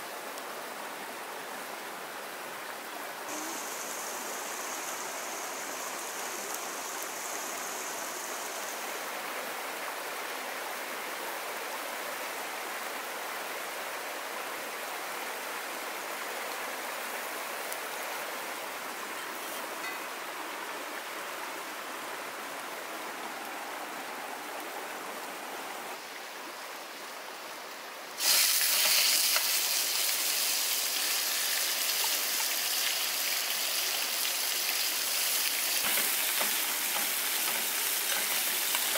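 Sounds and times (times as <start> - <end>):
stream running: 0.0 - 38.9
chicken sizzling in hot oil: 28.2 - 38.9.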